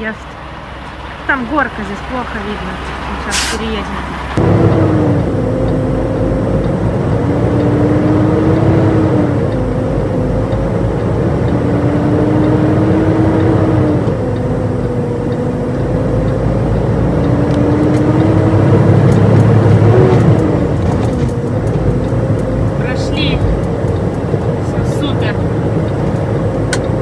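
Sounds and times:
truck diesel engine shifting gears: 0.0s - 27.0s.

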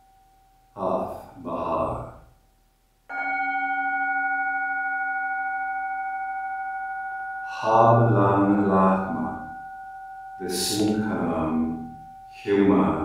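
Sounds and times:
singing bowl ringing: 0.0s - 0.8s, 3.1s - 13.0s
man speaking: 0.8s - 2.2s, 7.5s - 9.5s, 10.4s - 13.0s.

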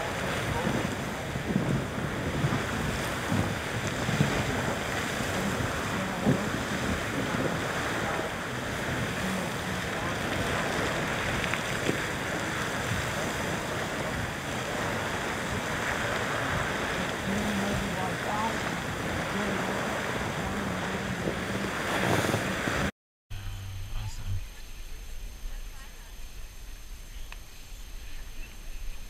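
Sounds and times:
geyser rushing steam and water: 0.0s - 22.9s.

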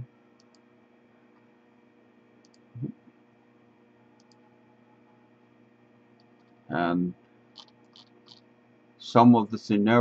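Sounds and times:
low electrical hum: 0.0s - 10.0s
computer mouse double-clicking: 4.2s - 4.4s, 7.6s - 8.4s.

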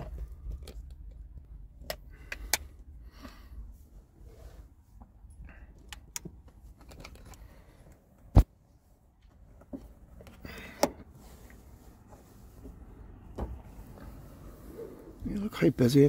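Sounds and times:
camera handling clicks and rustles: 5.9s - 7.5s.

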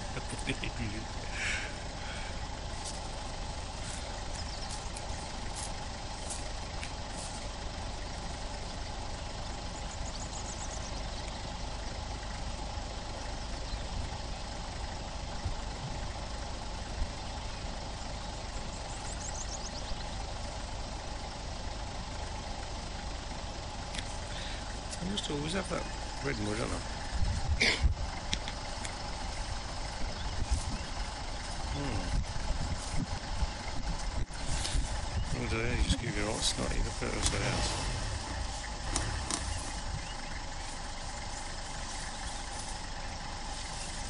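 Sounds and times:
vehicle engine idling: 0.0s - 44.0s.

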